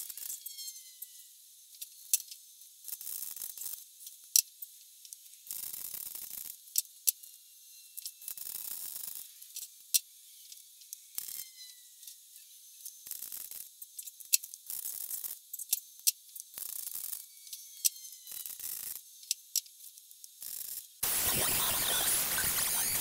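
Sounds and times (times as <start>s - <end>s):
welder crackling and sizzling: 21.0s - 23.0s.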